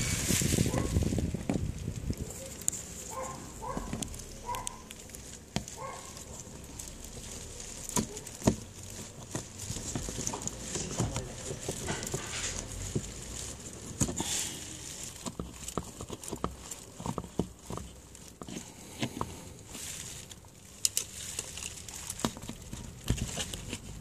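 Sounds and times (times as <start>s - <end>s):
screwdriver scraping on plastic: 15.0s - 19.4s, 20.8s - 24.0s.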